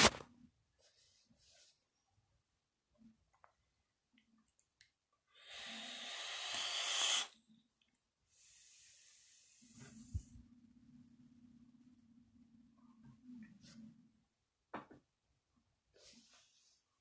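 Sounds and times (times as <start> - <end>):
fog machine hissing: 5.4 - 7.3.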